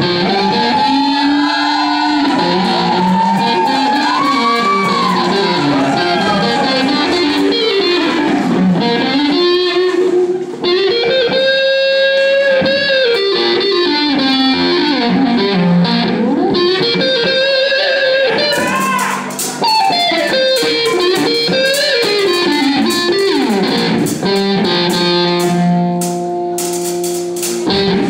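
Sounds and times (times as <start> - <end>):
electric guitar lead melody: 0.0 - 28.0.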